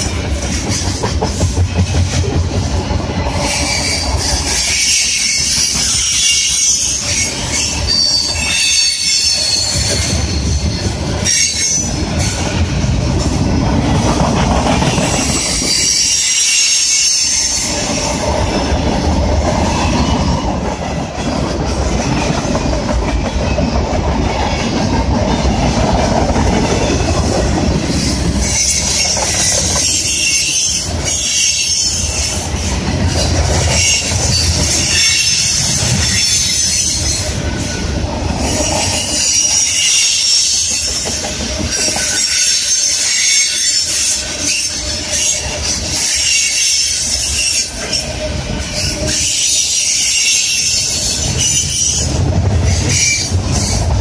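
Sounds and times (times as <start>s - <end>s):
freight train rolling past: 0.0s - 54.0s
high wavering wheel squeal: 3.2s - 12.6s, 15.0s - 20.8s.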